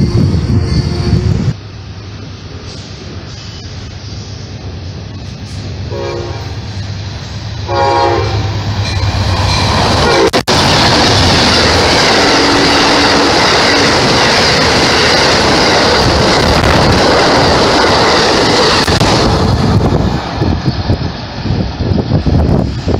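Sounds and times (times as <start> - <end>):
train horn blast: 0.0 - 1.5, 5.9 - 6.6, 7.6 - 9.0, 10.0 - 10.5, 12.2 - 14.0
train wheels rushing on rails: 0.0 - 22.9.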